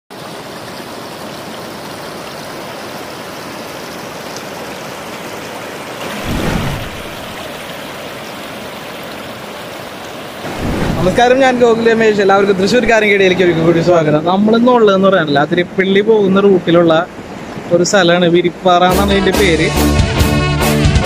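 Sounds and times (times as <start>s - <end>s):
river rushing over rocks: 0.2s - 13.2s
low rumble: 6.1s - 7.5s, 10.5s - 11.6s.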